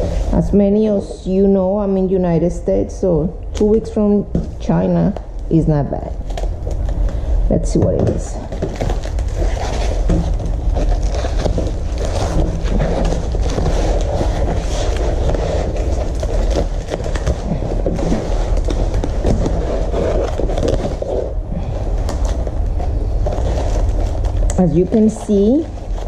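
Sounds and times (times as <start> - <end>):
foam wrapping crinkling: 8.2 - 26.0
roll rubbing on tabletop: 9.3 - 21.4.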